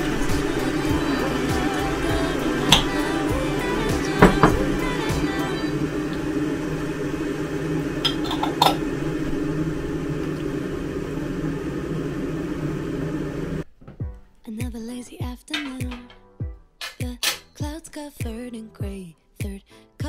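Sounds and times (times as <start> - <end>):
appliance humming: 0.0 - 14.4.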